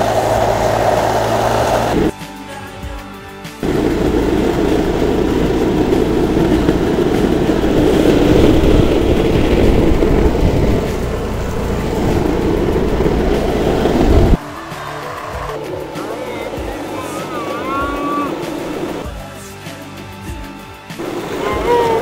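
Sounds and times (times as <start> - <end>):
wind buffeting microphone: 3.6 - 14.4.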